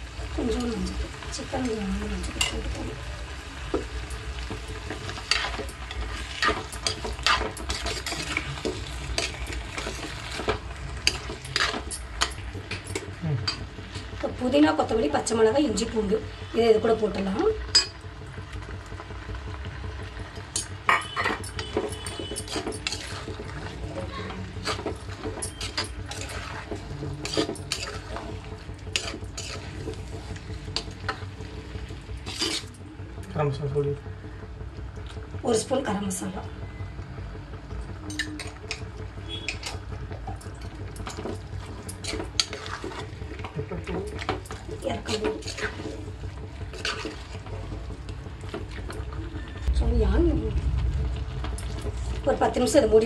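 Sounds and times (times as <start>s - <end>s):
chicken and onions sizzling: 0.0s - 34.2s, 38.4s - 53.0s
spatula scraping pot: 4.4s - 15.4s, 20.6s - 31.6s, 32.2s - 32.8s, 41.0s - 49.1s
metal spoon stirring thick paste: 4.8s - 12.4s, 21.6s - 31.1s, 41.1s - 49.0s.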